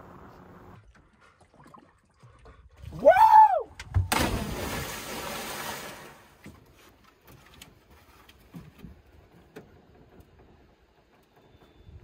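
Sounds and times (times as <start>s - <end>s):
churning water: 0.4s - 6.9s
body splashing into water: 4.0s - 6.4s.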